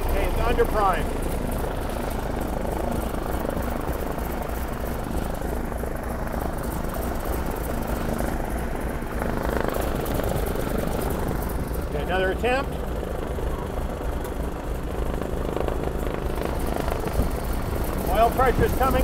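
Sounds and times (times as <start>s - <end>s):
radial aircraft engine idling: 0.0s - 19.0s.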